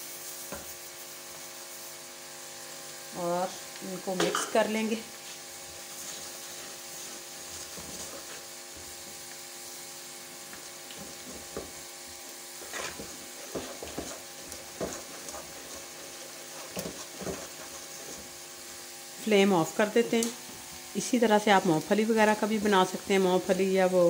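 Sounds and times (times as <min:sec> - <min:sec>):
steady mechanical hum: 0:00.0 - 0:24.0
spatula scraping and knocking pan: 0:04.2 - 0:09.2, 0:10.5 - 0:18.4
spatula stirring thick syrup: 0:05.6 - 0:09.0, 0:12.6 - 0:18.4.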